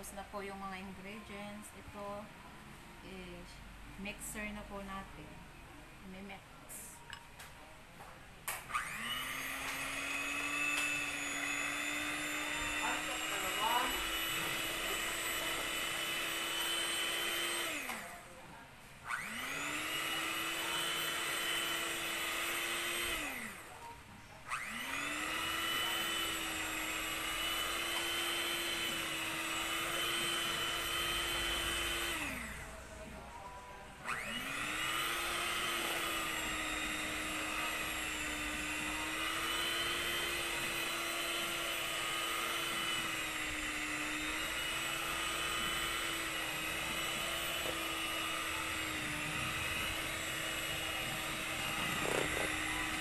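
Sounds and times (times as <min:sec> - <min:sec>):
electric hand mixer whining: 0:08.5 - 0:18.2, 0:19.0 - 0:23.8, 0:24.5 - 0:32.8, 0:34.0 - 0:53.0.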